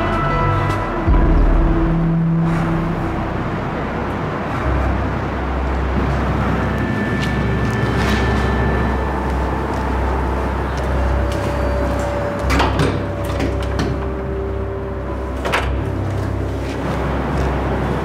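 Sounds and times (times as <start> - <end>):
low rumble: 0.0 - 13.2
door clacking: 15.4 - 15.9.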